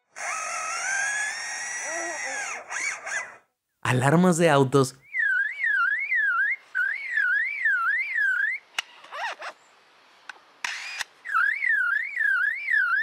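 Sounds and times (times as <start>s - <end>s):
bird mimicking car alarm wail: 5.0s - 8.7s, 11.2s - 13.0s.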